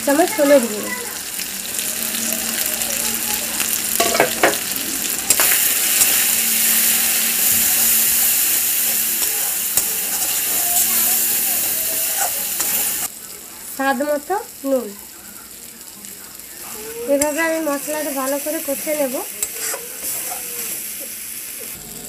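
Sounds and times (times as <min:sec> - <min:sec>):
food sizzling in hot oil: 0:00.0 - 0:22.0
metal spatula scraping pan: 0:05.3 - 0:13.1, 0:17.1 - 0:20.9.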